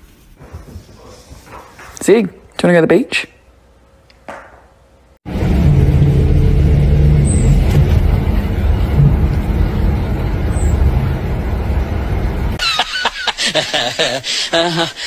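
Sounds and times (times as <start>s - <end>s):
bus engine rumble: 5.3s - 12.6s.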